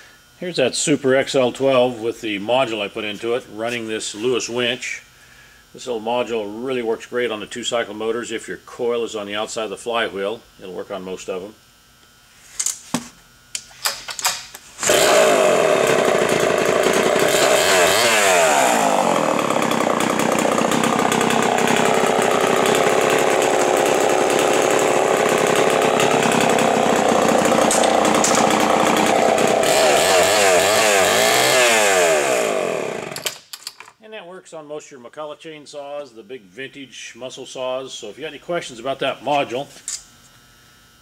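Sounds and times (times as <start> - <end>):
chainsaw engine revving: 14.8 - 33.4.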